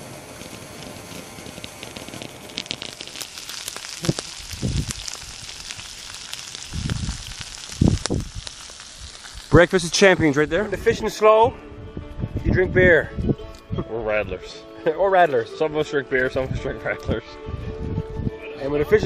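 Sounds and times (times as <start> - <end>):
sausages sizzling in a frying pan: 0.0 - 10.5
wood fire crackling: 0.0 - 11.3.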